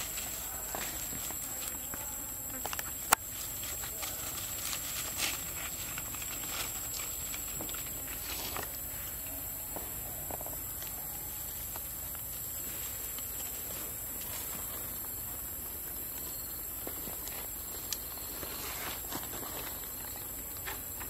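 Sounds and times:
rustling in dry leaves: 0:00.0 - 0:21.0.

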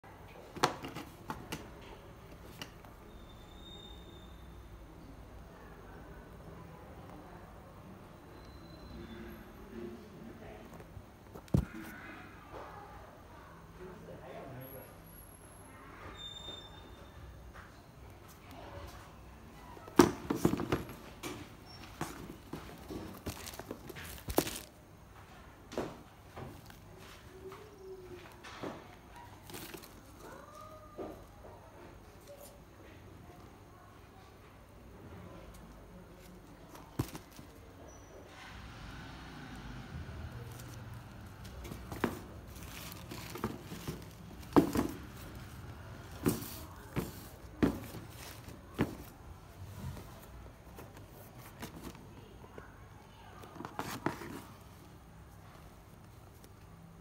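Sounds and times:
sneaker handling knocks and rustles: 0:00.5 - 0:01.7, 0:11.3 - 0:12.0, 0:19.9 - 0:24.8, 0:29.4 - 0:30.2, 0:36.7 - 0:37.6, 0:40.5 - 0:52.0, 0:53.4 - 0:54.7
sneakers knocking on cardboard box: 0:41.6 - 0:45.5, 0:46.1 - 0:49.1.

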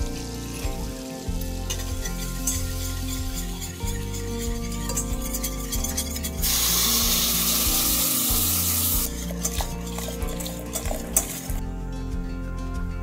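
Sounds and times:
background music: 0:00.0 - 0:13.0
milk hissing in hot pan: 0:00.4 - 0:09.2.

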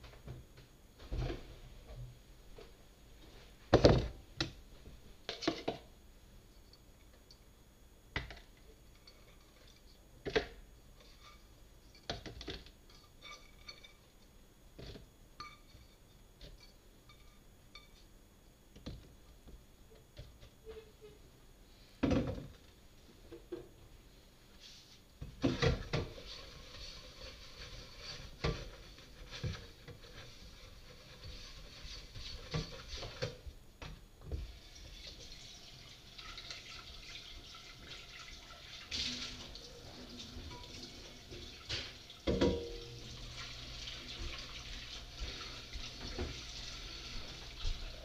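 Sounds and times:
faucet running into sink: 0:34.4 - 0:48.0
things knocking in sink: 0:41.6 - 0:42.8.

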